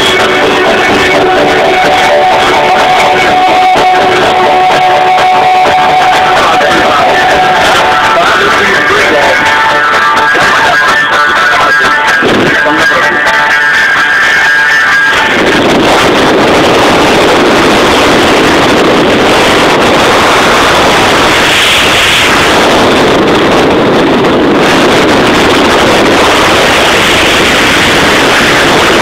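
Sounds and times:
wind roar on microphone: 0.0s - 29.0s.

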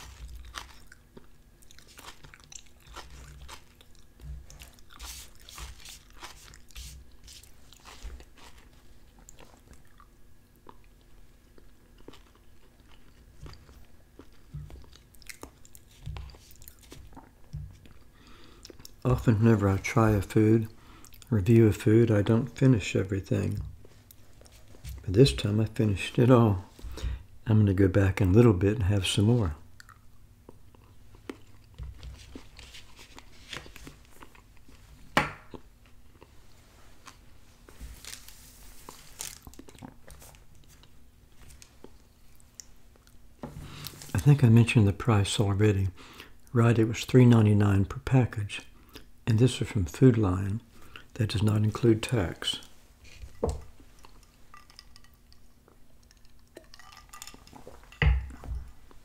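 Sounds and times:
person chewing food: 0.0s - 19.0s, 20.9s - 21.3s, 29.8s - 44.0s, 53.1s - 59.0s.

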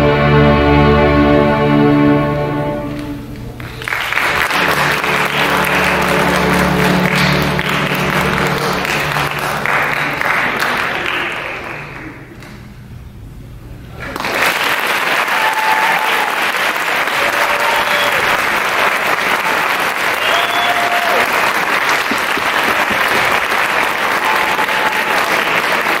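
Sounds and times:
string orchestra note: 0.0s - 3.4s, 4.3s - 9.9s
audience applauding: 3.0s - 12.6s, 13.9s - 26.0s
audience cheering: 3.7s - 12.0s, 14.1s - 26.0s.

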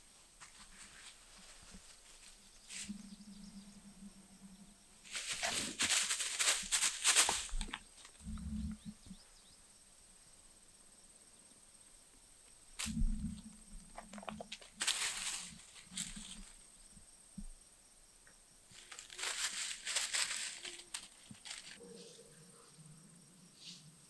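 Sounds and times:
dry leaves rustling and crackling: 5.0s - 8.2s, 14.0s - 16.6s, 18.7s - 21.8s.

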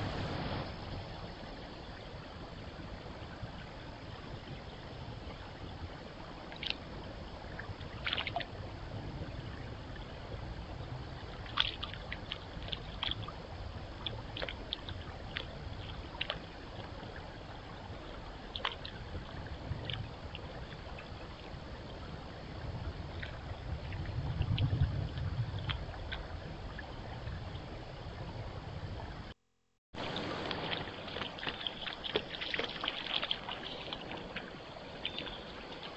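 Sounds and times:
microphone hiss: 0.0s - 35.9s
low rumble: 21.6s - 29.4s
splashing steps in water: 30.1s - 35.9s.

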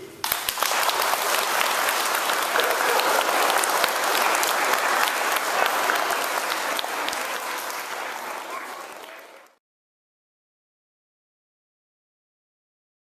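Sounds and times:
audience applauding: 0.2s - 9.6s.

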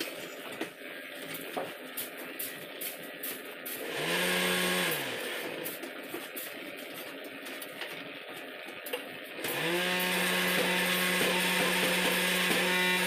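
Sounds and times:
electric motor humming: 3.7s - 6.7s, 9.3s - 13.0s.

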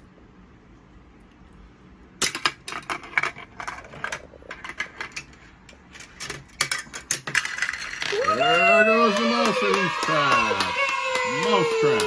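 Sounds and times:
ball and plastic parts clattering: 2.2s - 8.4s.

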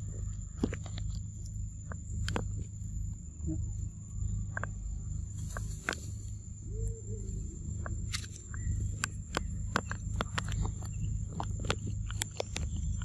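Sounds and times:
high insect drone: 0.0s - 13.0s
low rumble: 0.0s - 13.0s
clicks on dry leaf litter: 7.8s - 13.0s.

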